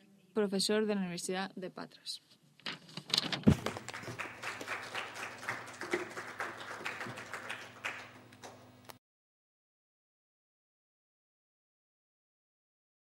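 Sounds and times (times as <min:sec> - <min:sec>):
audience applauding: 0:03.5 - 0:08.6.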